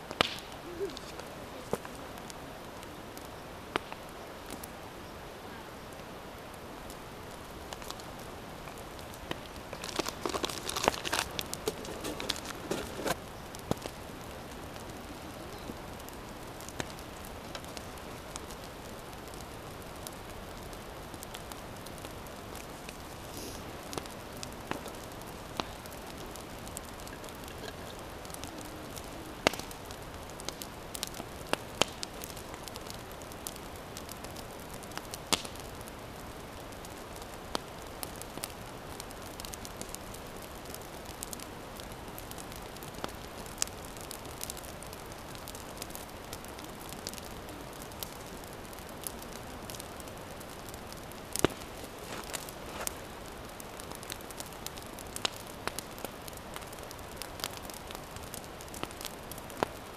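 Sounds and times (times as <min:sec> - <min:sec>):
steady background hiss: 0:00.0 - 0:59.9
paper bag crinkling: 0:09.8 - 0:13.2.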